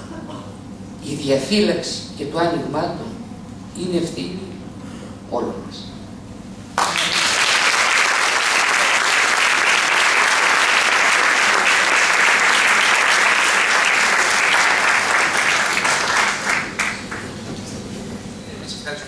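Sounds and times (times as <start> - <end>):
audience applauding: 6.8 - 17.4.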